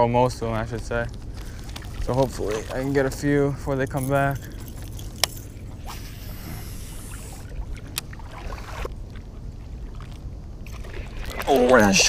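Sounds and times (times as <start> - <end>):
low steady rumble: 0.0 - 12.0
fishing reel whirring: 4.2 - 8.9.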